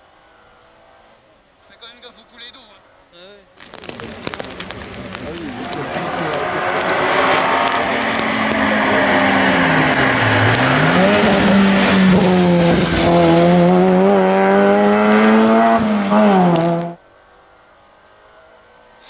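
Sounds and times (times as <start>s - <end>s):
rally car engine at high revs: 4.3s - 17.0s.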